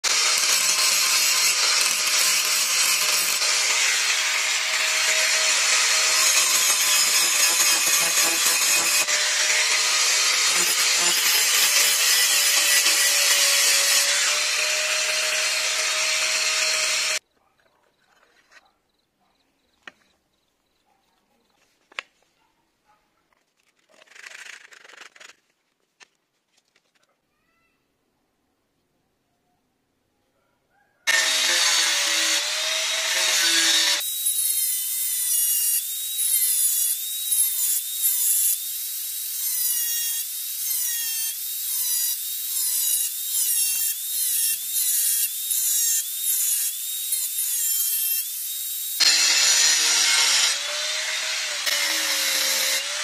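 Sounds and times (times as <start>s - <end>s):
angle grinder grinding metal: 0.0s - 17.2s, 31.1s - 53.0s.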